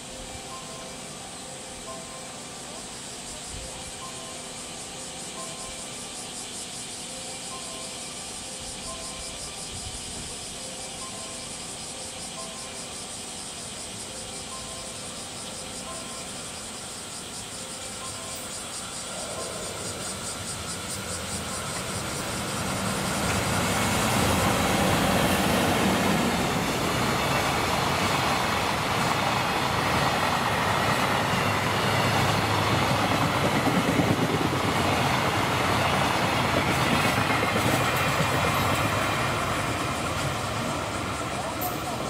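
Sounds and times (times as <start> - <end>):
train wheels on rails: 12.1 - 42.0.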